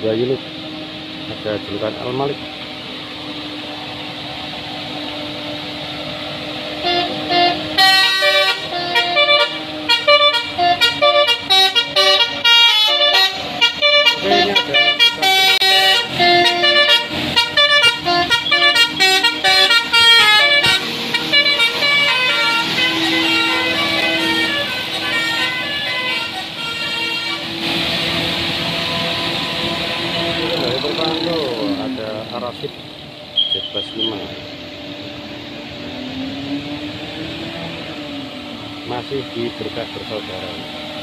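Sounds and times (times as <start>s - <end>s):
bus engine running: 0.0s - 41.0s
multi-tone bus air horn tune: 6.4s - 31.8s.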